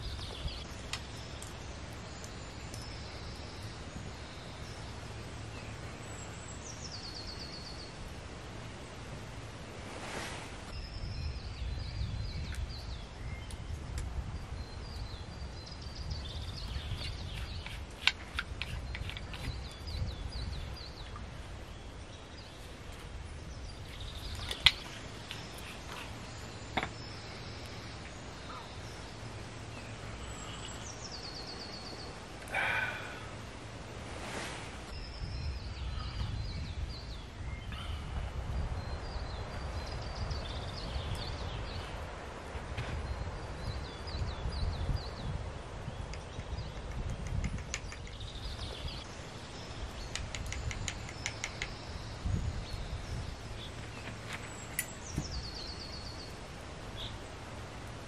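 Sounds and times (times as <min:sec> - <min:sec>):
small birds chirping: 0:00.0 - 0:08.1, 0:10.0 - 0:58.0.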